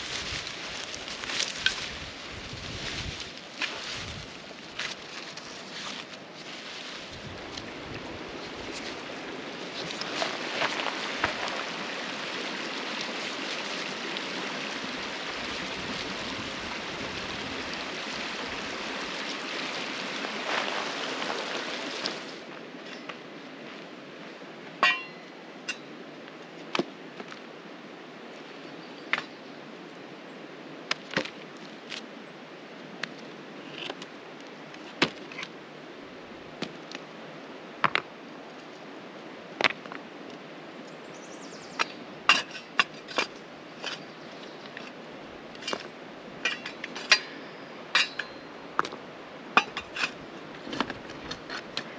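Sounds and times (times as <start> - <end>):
creek flowing: 0.0 - 26.1
metal shovel on rocks: 24.8 - 25.9, 41.8 - 45.0, 45.6 - 49.0, 49.6 - 51.9.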